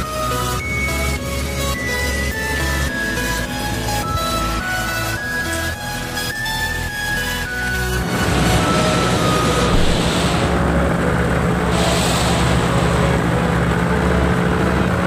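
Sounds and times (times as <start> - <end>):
paramotor engine droning: 0.0 - 15.0
wind rushing: 8.4 - 10.8.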